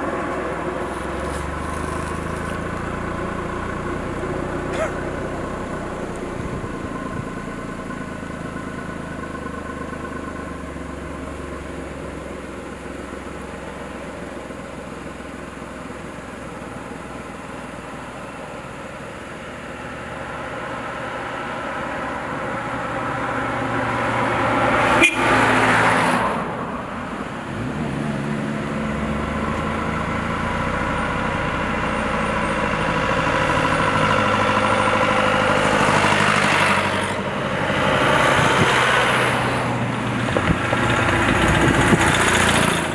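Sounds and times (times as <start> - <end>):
traffic engines idling: 0.0 - 42.9
vehicle passing close by: 19.9 - 42.9.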